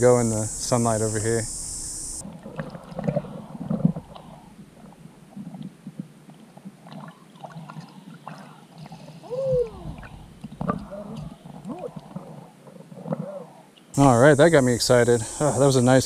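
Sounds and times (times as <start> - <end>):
water sloshing and bubbling underwater: 2.2 - 13.9.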